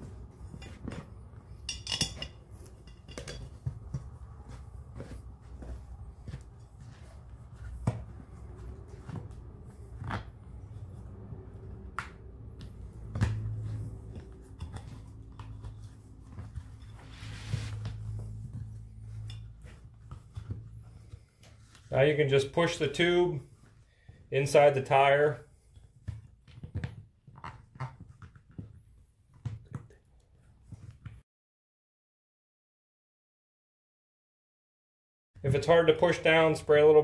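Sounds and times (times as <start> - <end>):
low steady hum: 0.0 - 24.1.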